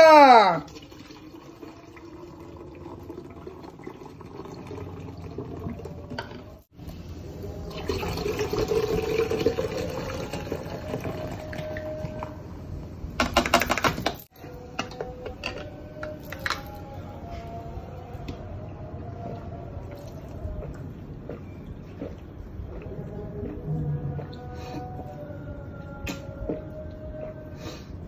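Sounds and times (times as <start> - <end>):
soda pouring into a jug: 0.7 - 6.2, 7.3 - 12.1.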